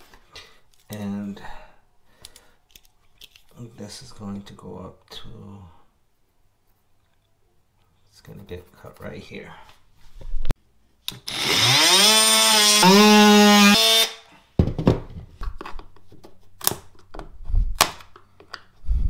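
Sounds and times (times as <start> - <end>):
multi-tool buzzing: 11.1 - 14.4.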